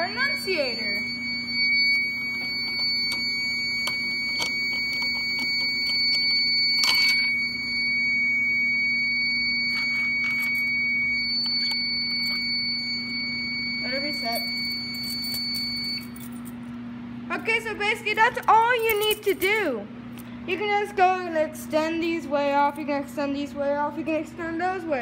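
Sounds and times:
fire alarm high-pitched tone: 0.0 - 16.5
steady low hum: 0.0 - 25.0.

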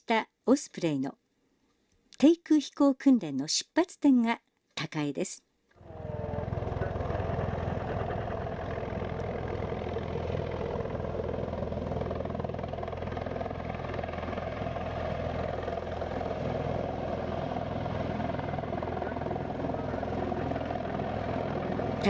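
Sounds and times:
tiltrotor aircraft hovering: 5.8 - 22.0.

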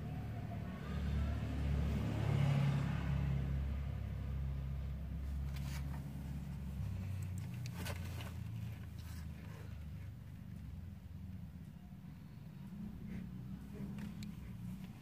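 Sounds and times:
faint rustles: 5.2 - 15.0.

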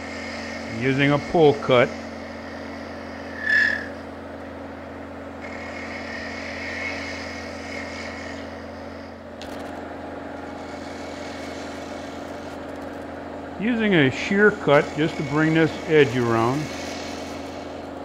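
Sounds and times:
lathe motor running: 0.0 - 18.0
high-pitched squeal: 0.8 - 4.1.

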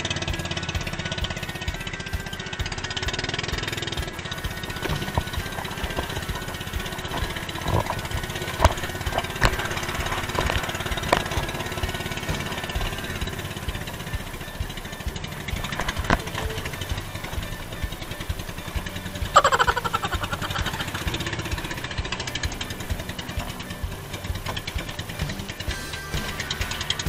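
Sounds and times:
small boat engine running: 0.0 - 27.0
water splashing along hull: 4.1 - 25.7.

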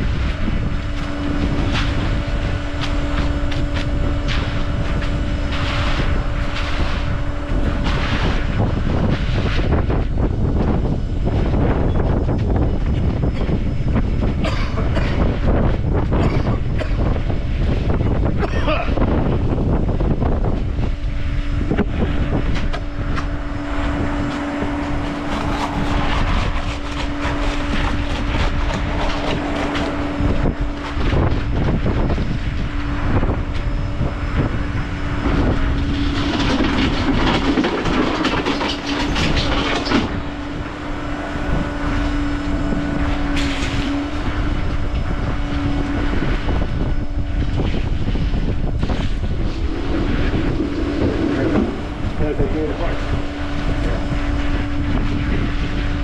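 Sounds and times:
motor humming: 0.0 - 56.0
wind buffeting microphone: 0.0 - 56.0.

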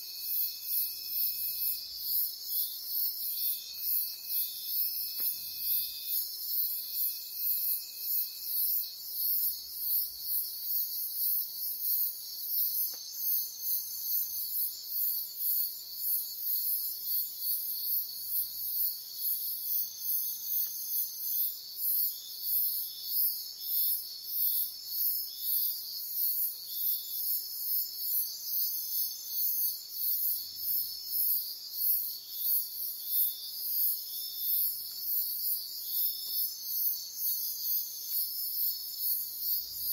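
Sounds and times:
shrill insect calls: 0.0 - 39.9.

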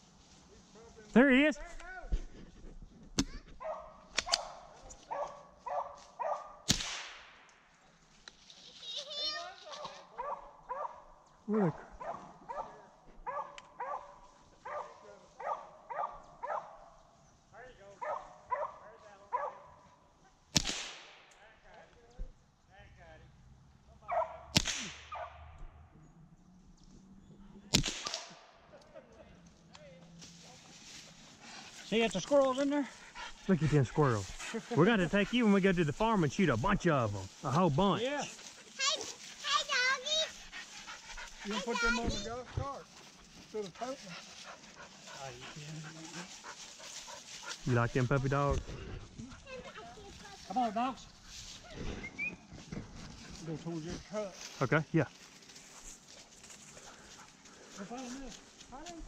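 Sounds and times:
dogs barking: 3.6 - 6.7, 9.8 - 11.2, 11.8 - 17.0, 18.0 - 20.0, 24.0 - 24.5, 25.1 - 25.5, 31.8 - 37.2
loud gunshot echoing: 6.7 - 7.4, 20.6 - 21.3, 24.5 - 25.2, 27.7 - 28.4
gunshots with echo: 27.7 - 28.4.

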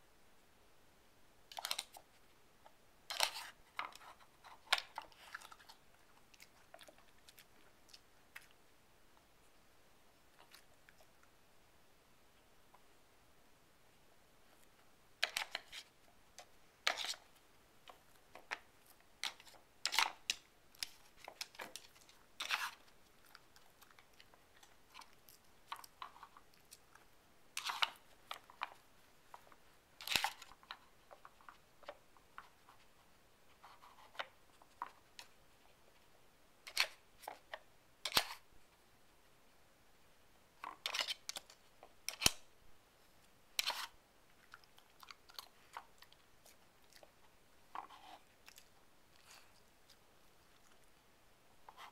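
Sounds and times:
puzzle blocks scraping and clacking: 43.6 - 44.0.

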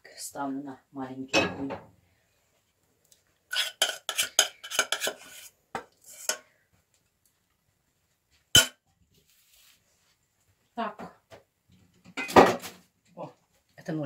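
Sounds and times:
metal kitchenware clattering: 1.3 - 1.8, 3.5 - 5.3, 8.6 - 8.8, 12.1 - 12.7.

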